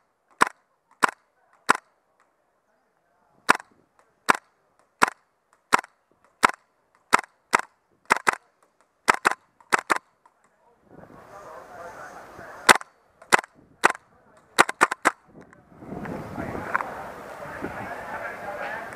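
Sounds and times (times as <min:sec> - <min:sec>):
airsoft rifle firing sharp pops: 0:00.3 - 0:02.3, 0:03.5 - 0:10.4, 0:12.7 - 0:14.0, 0:14.6 - 0:15.2.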